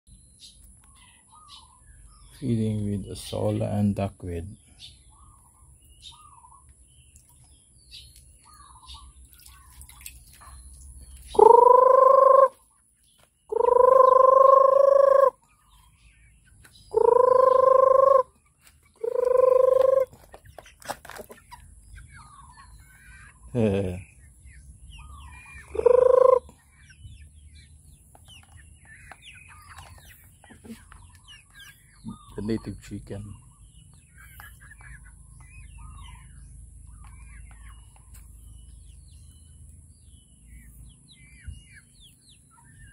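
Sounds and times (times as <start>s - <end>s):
person calling chickens: 11.2s - 24.2s, 25.1s - 27.0s, 28.6s - 39.1s.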